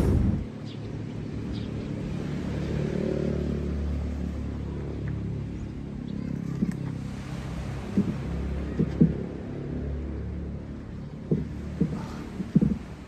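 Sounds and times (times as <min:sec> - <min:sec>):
low engine rumble: 0:00.0 - 0:13.0
faint knocks: 0:07.9 - 0:09.3, 0:11.2 - 0:13.0.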